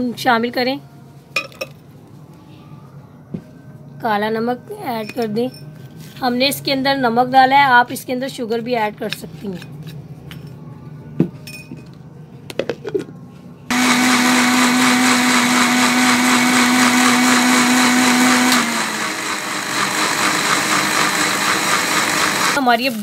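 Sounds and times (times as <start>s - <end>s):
electric blender whirring: 13.7s - 22.6s.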